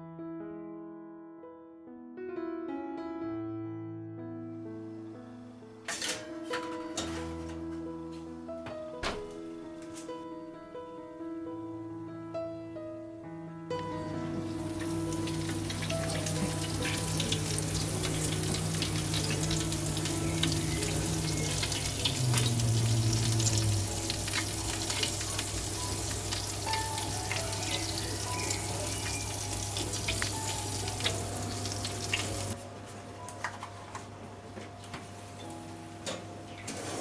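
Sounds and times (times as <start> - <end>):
meat sizzling and crackling in fat: 14.3 - 32.6.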